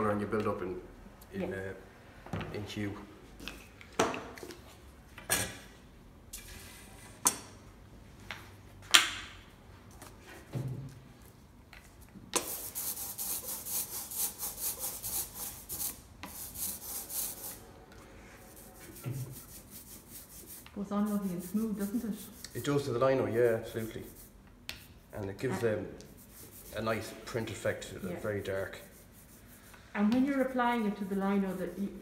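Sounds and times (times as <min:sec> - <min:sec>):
ink roller rolling sticky ink: 0:18.5 - 0:24.9.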